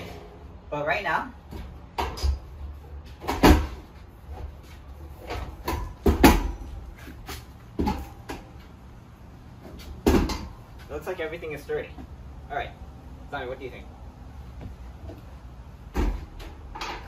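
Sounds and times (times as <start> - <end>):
metal clunks and knocks: 9.7 - 10.6, 15.9 - 17.0.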